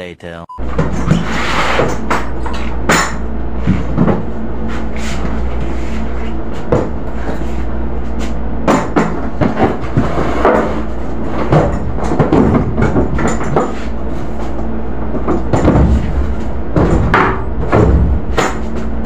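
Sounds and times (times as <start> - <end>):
steady low hum: 0.0 - 19.0
plastic crates knocking and clattering: 8.6 - 13.9, 15.1 - 18.9.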